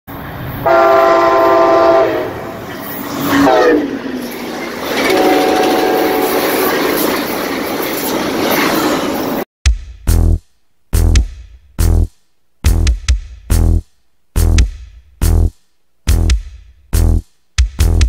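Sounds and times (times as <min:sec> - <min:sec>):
train rumble and rail clatter: 0:00.1 - 0:09.4
train horn chord: 0:00.6 - 0:02.6, 0:03.4 - 0:04.0, 0:05.1 - 0:06.6.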